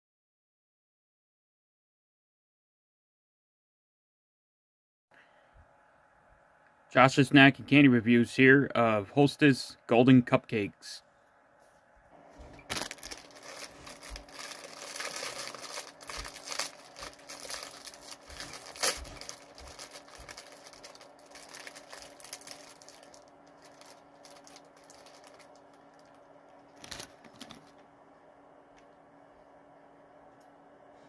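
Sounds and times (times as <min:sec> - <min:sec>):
plastic wrapper crinkling: 0:12.4 - 0:27.8.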